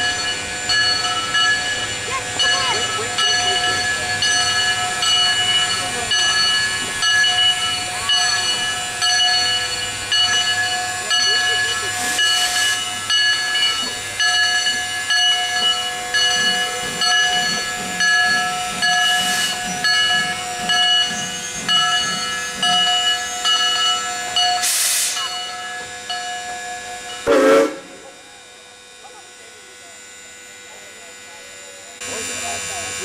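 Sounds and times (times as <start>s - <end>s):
steam locomotive hissing rhythmically: 0.0s - 33.0s
short blasts of steam: 24.6s - 25.4s.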